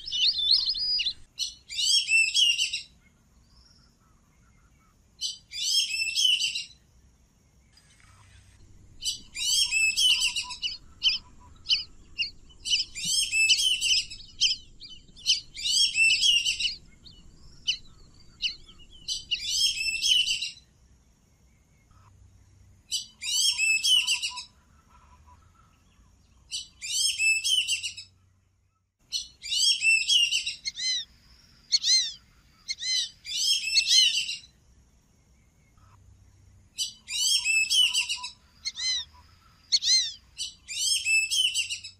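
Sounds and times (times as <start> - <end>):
ducks whistling calls: 0.0 - 1.3, 8.9 - 20.5, 36.8 - 41.9.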